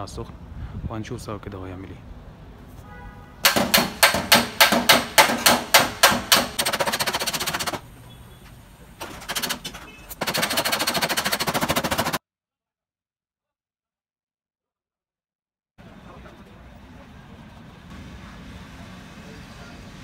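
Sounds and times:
hammer on sheet metal: 3.4 - 7.8.

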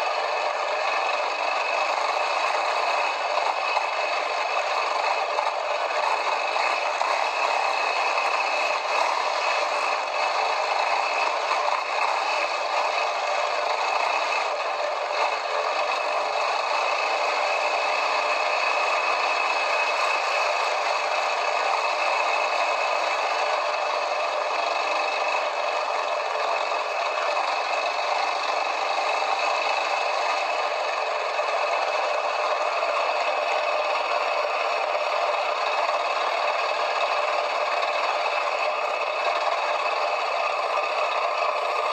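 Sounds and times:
quad bike engine: 0.0 - 41.9
rattling and clattering of machine: 0.0 - 41.9.

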